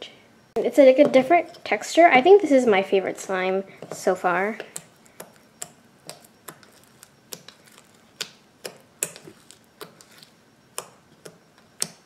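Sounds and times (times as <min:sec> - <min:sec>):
slime bubbles clicking and popping: 0:04.8 - 0:12.0.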